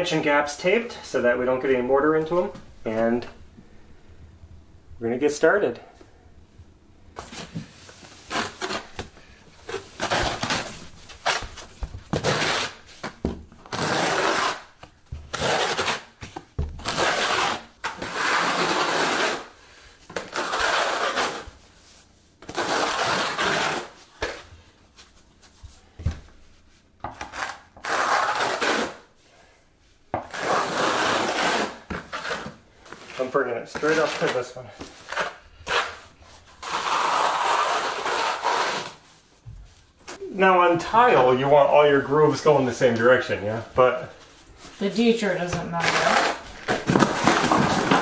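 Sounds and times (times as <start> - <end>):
trowel scraping mortar: 13.7 - 14.7, 36.6 - 39.0.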